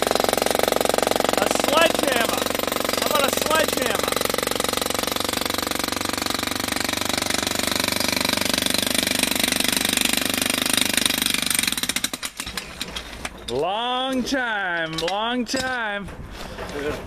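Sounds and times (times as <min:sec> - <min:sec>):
jackhammer breaking concrete: 0:00.0 - 0:13.4.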